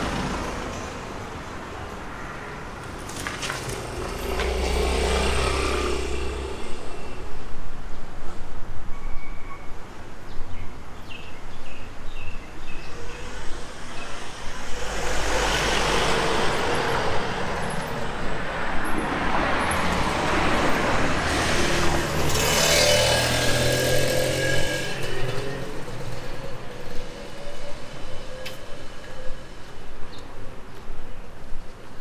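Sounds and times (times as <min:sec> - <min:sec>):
vehicle passing by: 0:03.4 - 0:07.5.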